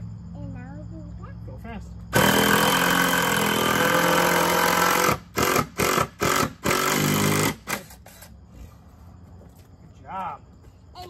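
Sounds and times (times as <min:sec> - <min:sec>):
power drill driving a screw: 0:02.2 - 0:07.9.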